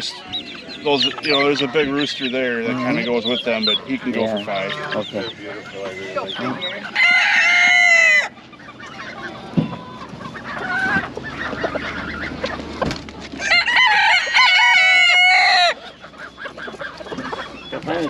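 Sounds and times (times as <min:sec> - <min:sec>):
chickens clucking: 0:00.0 - 0:18.0
rooster crowing: 0:06.8 - 0:08.4, 0:13.4 - 0:15.9.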